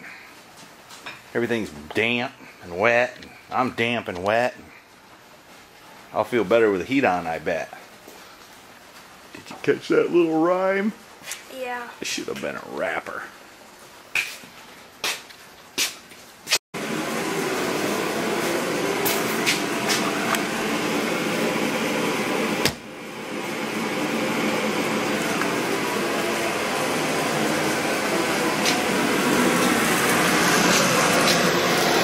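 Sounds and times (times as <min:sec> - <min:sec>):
forced-air heater running: 0:16.8 - 0:32.0
heater click: 0:18.4 - 0:31.5.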